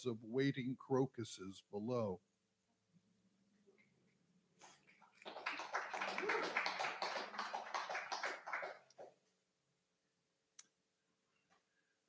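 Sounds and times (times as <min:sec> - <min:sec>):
small audience applauding: 0:04.7 - 0:09.2.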